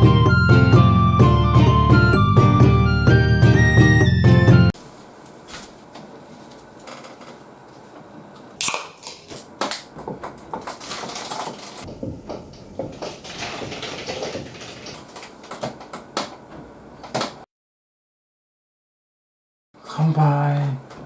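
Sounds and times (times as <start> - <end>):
sharp knocks: 11.9 - 14.5.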